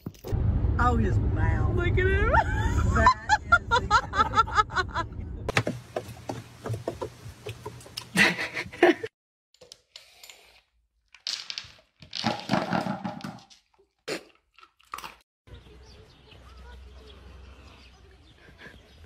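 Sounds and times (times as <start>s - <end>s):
low outdoor rumble: 0.3s - 5.5s.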